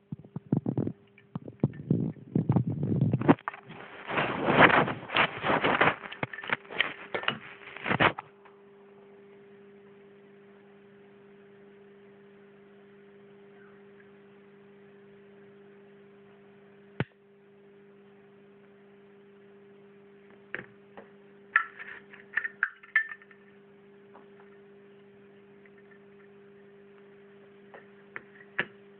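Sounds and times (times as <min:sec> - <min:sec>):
low hum: 0:00.0 - 0:28.9.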